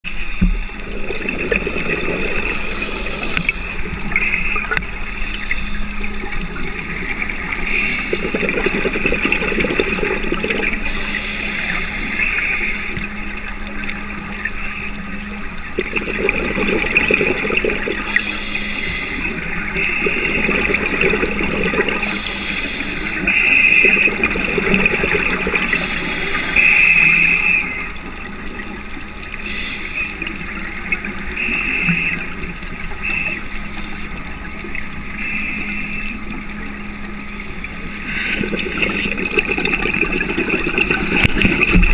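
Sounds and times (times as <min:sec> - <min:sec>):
bubbling exhaust underwater: 0:00.1 - 0:41.9
regulator hissing inhalations: 0:02.4 - 0:03.8, 0:10.8 - 0:13.0, 0:18.0 - 0:20.4, 0:22.0 - 0:23.8, 0:25.6 - 0:27.8, 0:29.4 - 0:30.2.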